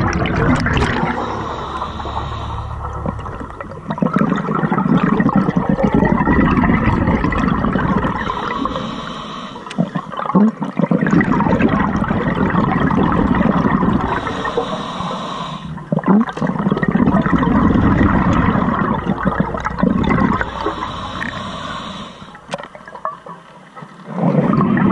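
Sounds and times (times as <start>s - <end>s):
exhaled bubbles rushing: 0.0s - 8.9s, 9.7s - 14.9s, 15.6s - 23.3s, 24.0s - 24.9s
regulator inhalation hiss: 1.2s - 2.8s, 8.2s - 9.8s, 14.1s - 15.8s, 20.4s - 22.5s.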